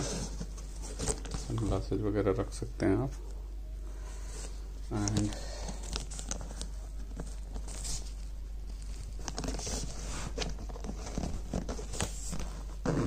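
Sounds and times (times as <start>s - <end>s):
nylon fabric rustling and scraping: 0.0s - 1.9s, 7.1s - 13.0s
faint low hum: 0.0s - 13.0s.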